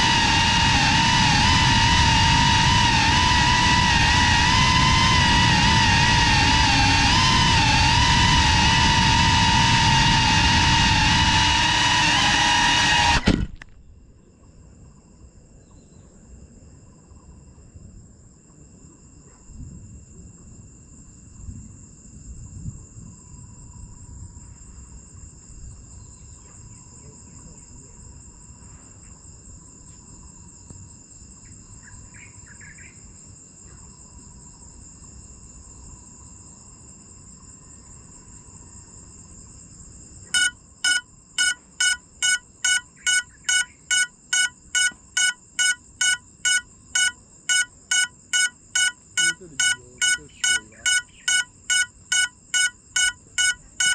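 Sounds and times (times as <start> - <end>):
loud electronic beeps: 0.0 - 13.6, 40.4 - 53.9
insects trilling in grass: 19.8 - 53.9.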